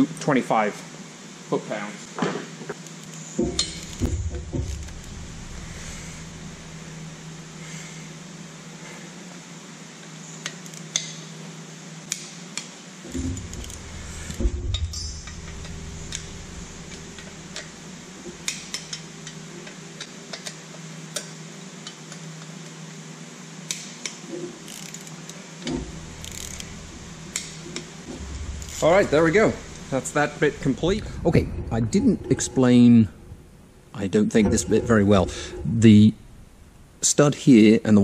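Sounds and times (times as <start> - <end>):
torque wrench metallic clicks: 23.7 - 26.7.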